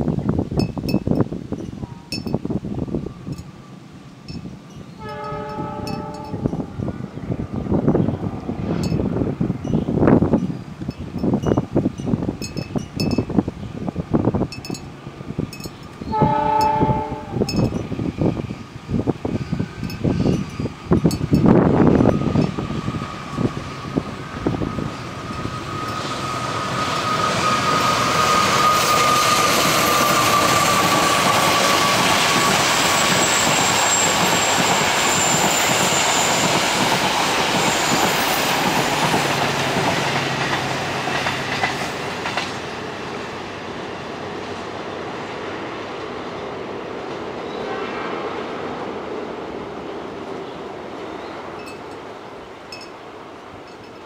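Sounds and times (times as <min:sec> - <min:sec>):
diesel locomotive engines: 0:00.0 - 0:54.0
train wheels on rails: 0:00.2 - 0:54.0
high wheel squeal: 0:19.2 - 0:39.2.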